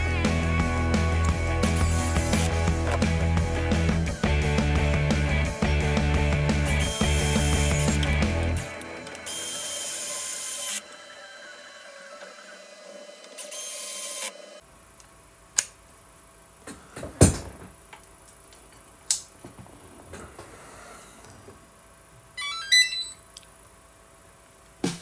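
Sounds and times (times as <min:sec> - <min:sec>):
electric screwdriver driving screws: 0:01.7 - 0:02.6, 0:06.8 - 0:08.2, 0:08.9 - 0:11.0, 0:12.1 - 0:14.5.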